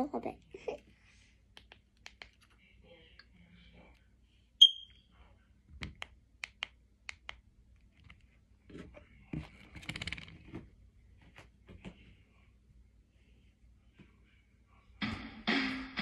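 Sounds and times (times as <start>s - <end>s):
high-pitched electronic beep: 4.6s - 4.9s.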